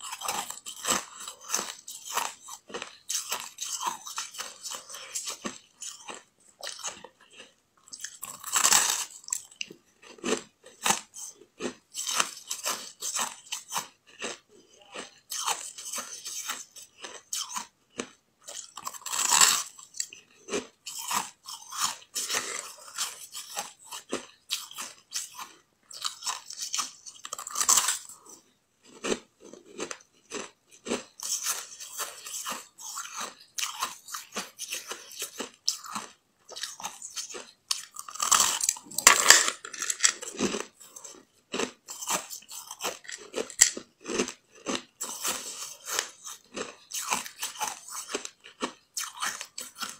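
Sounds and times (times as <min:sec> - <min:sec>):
crunching ice: 0:29.0 - 0:49.9.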